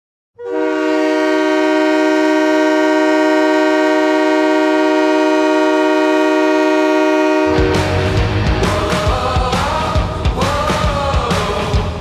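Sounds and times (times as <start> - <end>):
goal horn blast: 0.4 - 8.7.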